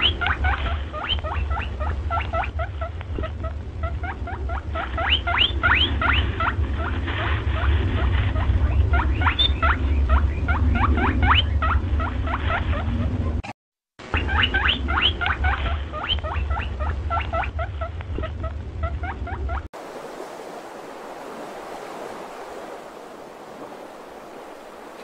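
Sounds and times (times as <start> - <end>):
rabbit squeaking: 0.0 - 13.4, 14.1 - 19.7
steady low rumble: 0.0 - 13.4, 14.8 - 19.7.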